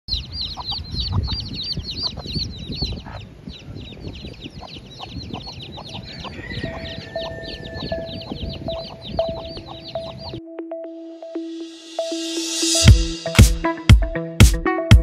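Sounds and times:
chicks peeping: 0.1 - 10.4
hen clucking: 0.1 - 10.4.

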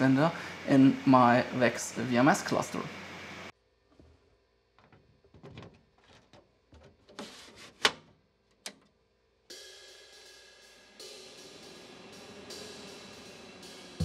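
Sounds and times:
plastic door clicks and knocks: 4.8 - 7.1
music: 9.5 - 14.0.

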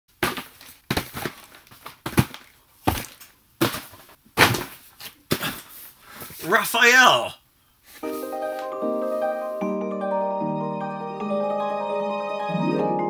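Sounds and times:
cardboard box scuffs and knocks: 0.2 - 4.9.

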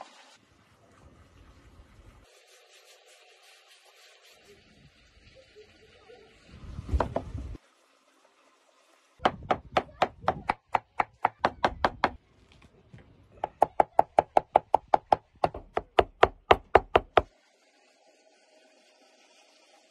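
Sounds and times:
knife chopping on wooden board: 9.2 - 12.2, 13.4 - 17.3.

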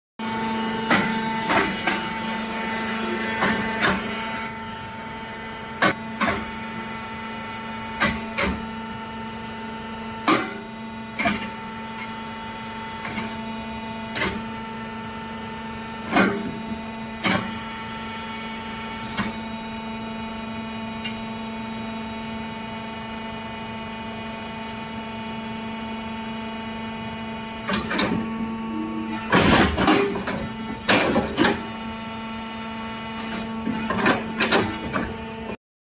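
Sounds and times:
excavator engine and hydraulics: 0.2 - 35.6.

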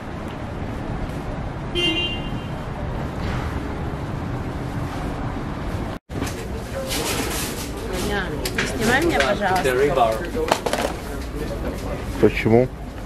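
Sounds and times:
traffic noise: 0.0 - 13.0
car horn toot: 1.7 - 2.6.

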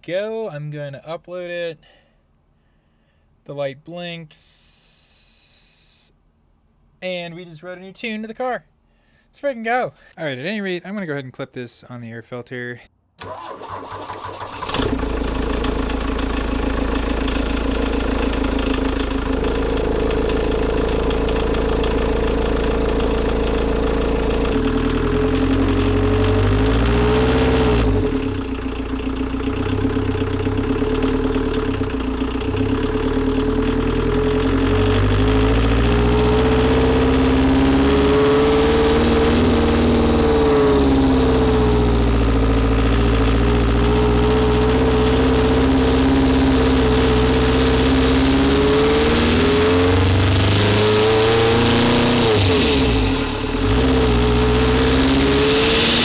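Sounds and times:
diesel engine at air intake: 13.2 - 56.0.

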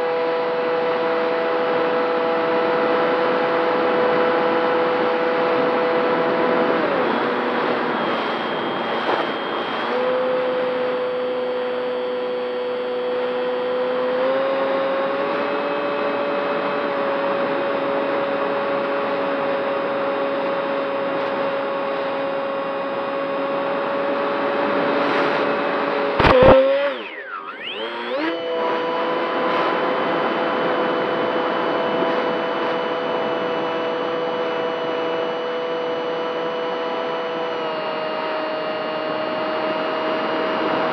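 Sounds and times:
model plane motor whine: 0.0 - 40.9
sharp crack of plane colliding: 26.2 - 26.6.

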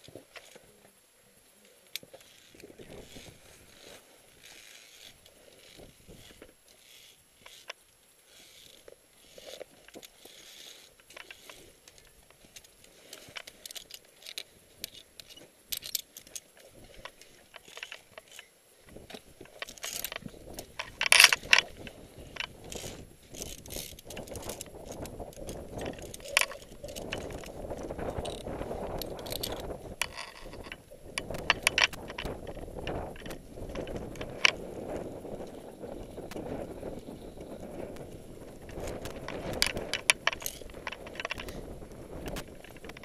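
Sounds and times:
metal gear clinking on cable: 8.3 - 18.5, 19.4 - 34.6, 38.7 - 43.0.

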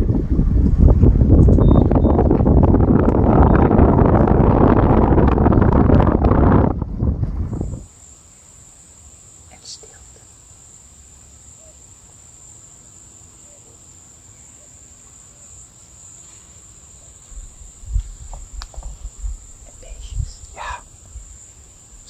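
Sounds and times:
low rumbling: 0.0 - 7.8
insects droning high-pitched: 7.6 - 22.0.

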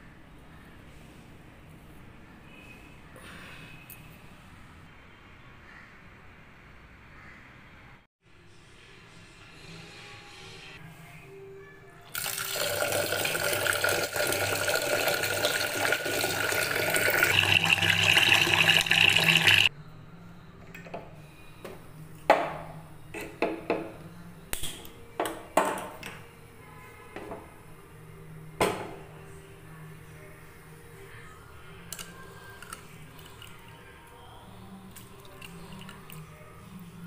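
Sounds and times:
water pouring into a pot: 12.1 - 19.7.

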